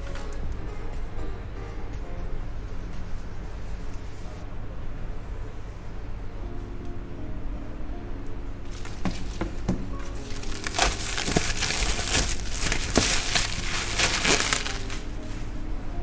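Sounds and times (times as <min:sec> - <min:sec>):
bubble wrap crinkling: 0:08.7 - 0:15.6.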